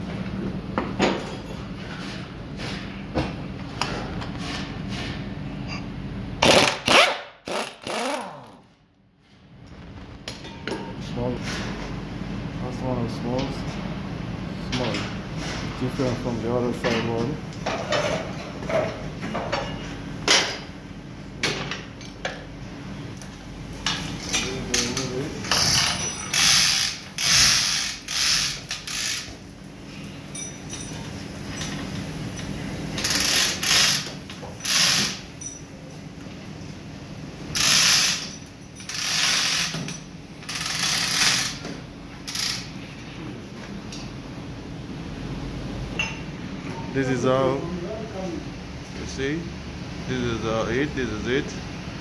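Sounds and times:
steady hum: 0.0 - 52.0
ratchet clicking: 25.5 - 29.3, 33.0 - 35.2, 37.6 - 41.6, 42.3 - 42.7.

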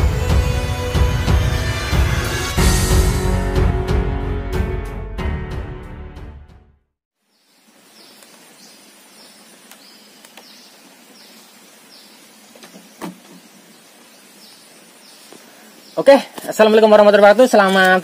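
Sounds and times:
background music: 0.0 - 6.9
rural outdoor ambience: 7.1 - 18.0.

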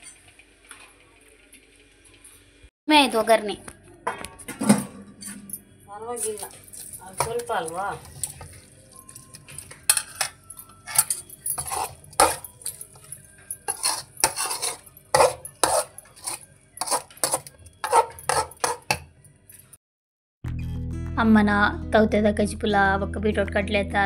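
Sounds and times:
steel ladle scraping a wok: 6.3 - 19.1.

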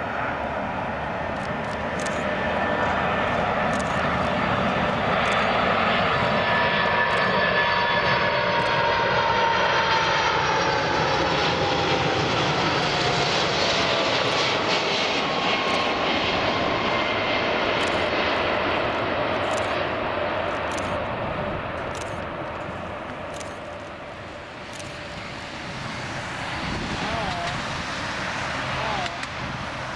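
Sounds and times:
jet engines with falling whine: 0.0 - 29.9.

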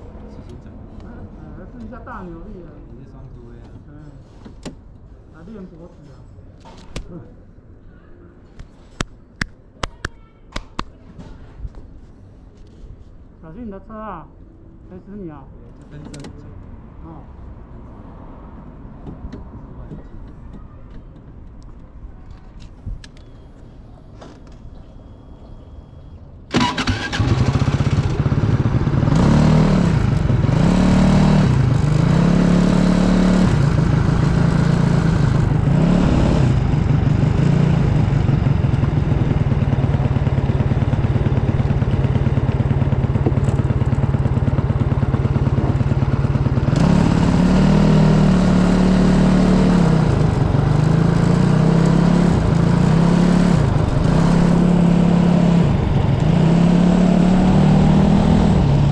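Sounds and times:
racing kart engine running: 26.5 - 58.9.

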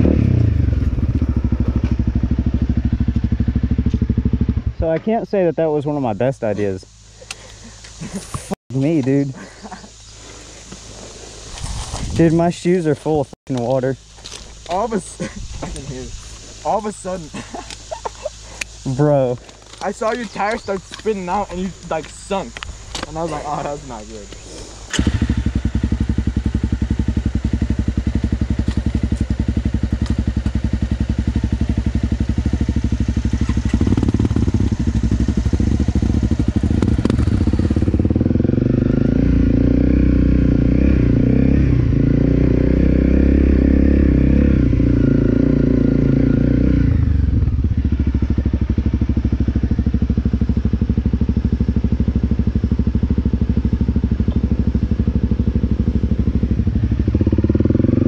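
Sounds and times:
motorcycle engine idling and revving: 0.0 - 58.0.

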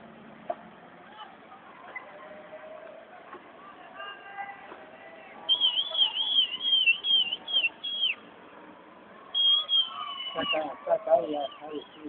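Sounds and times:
high whistled notes: 5.5 - 8.2, 9.4 - 10.7.

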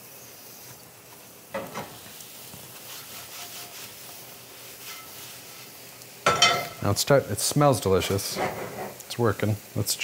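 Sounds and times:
mushrooms sizzling: 0.0 - 10.0
skillet scraping against pan: 2.8 - 5.3, 8.2 - 9.0.

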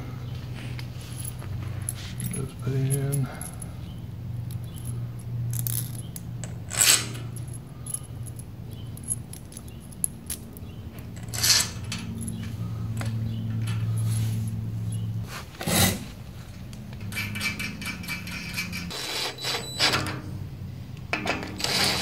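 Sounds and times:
steady low hum: 0.0 - 19.2
metal screws clinking in hand: 1.1 - 3.8, 4.4 - 15.1
louder screw rattles: 17.1 - 20.1, 21.2 - 22.0.

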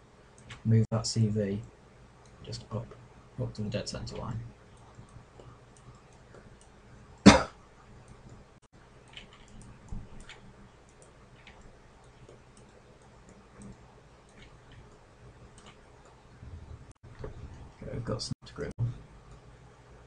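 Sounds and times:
computer mouse clicks: 4.1 - 6.8, 9.0 - 16.2.

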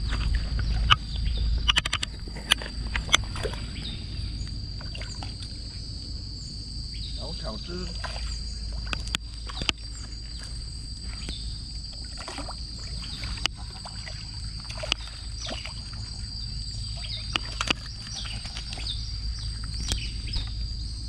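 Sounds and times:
high insect drone: 0.0 - 21.0
wind rumble on microphone: 0.0 - 21.0
sharp clicks: 1.6 - 3.2
bird chirps: 14.9 - 20.6.

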